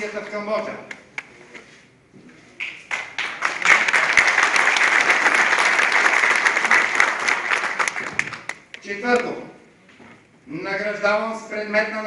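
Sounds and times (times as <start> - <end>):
audience applauding: 2.6 - 8.8.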